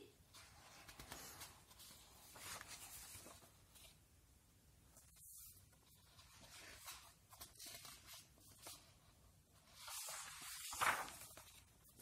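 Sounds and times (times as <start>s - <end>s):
paper pages rustling: 0.3s - 4.0s, 4.9s - 12.0s
page turning swish: 9.8s - 12.0s.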